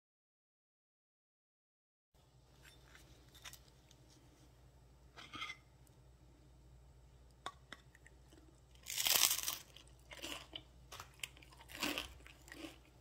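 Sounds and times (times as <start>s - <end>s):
crunching bread crust: 8.7s - 13.0s.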